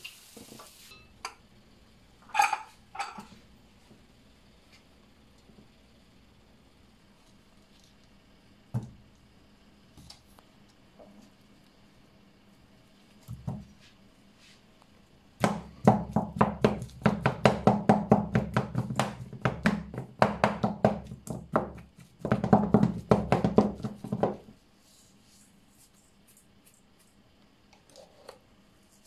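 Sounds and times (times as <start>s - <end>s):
spatula knocking in metal bowl: 15.4s - 24.4s.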